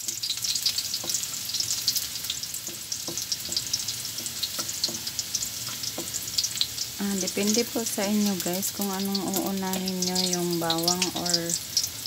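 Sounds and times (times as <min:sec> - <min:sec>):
garlic sizzling in oil: 0:00.0 - 0:12.0
spatula knocking on pan: 0:01.0 - 0:01.3, 0:02.6 - 0:06.3.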